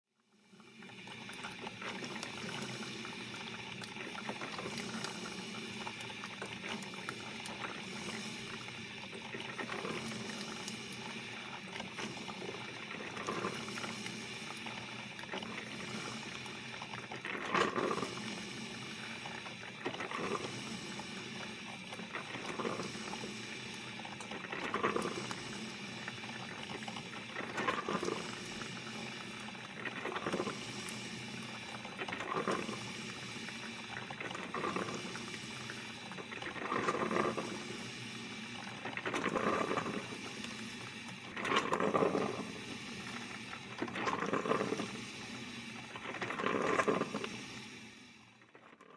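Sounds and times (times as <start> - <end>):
coffee maker brewing hiss: 0.2 - 48.9.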